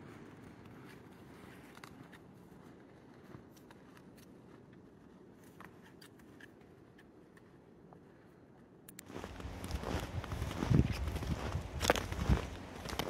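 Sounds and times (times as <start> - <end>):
footsteps crunching on snow: 9.0 - 13.0.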